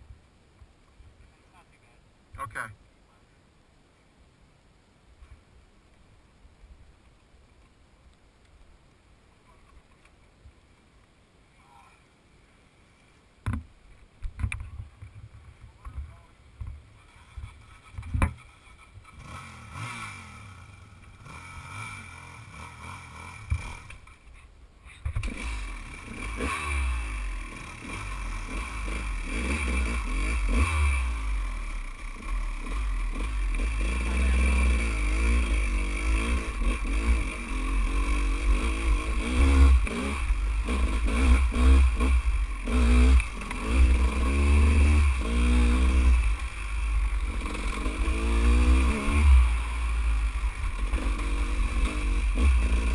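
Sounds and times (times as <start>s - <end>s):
dirt bike engine revving: 17.1s - 24.2s, 25.2s - 52.9s.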